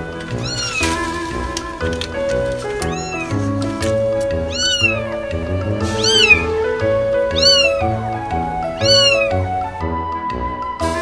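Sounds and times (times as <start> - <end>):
kittens meowing: 0.2 - 1.0, 2.6 - 9.8.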